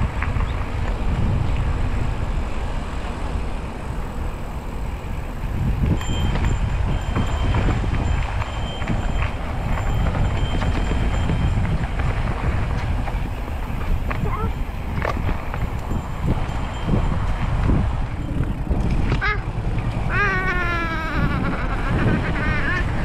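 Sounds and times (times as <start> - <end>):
wind on microphone: 0.0 - 23.0
bike rattling clicks: 7.5 - 23.0.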